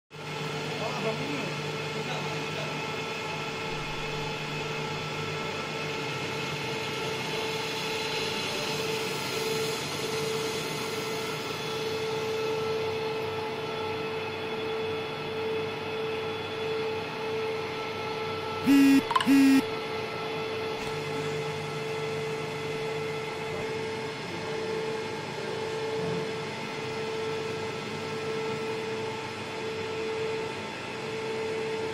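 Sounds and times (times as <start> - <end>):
short loud beeps: 18.7 - 19.7.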